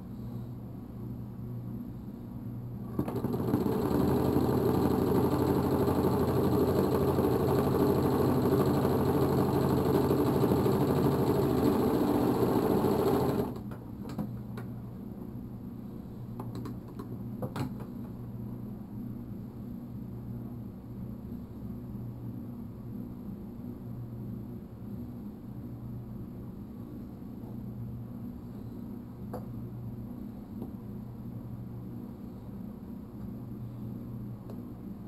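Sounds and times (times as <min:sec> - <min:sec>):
sewing machine running: 0:02.9 - 0:13.6.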